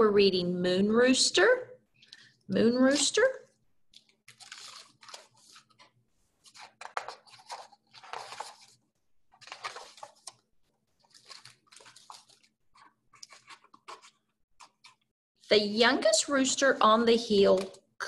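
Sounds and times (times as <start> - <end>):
book pages rustling: 3.9 - 15.1.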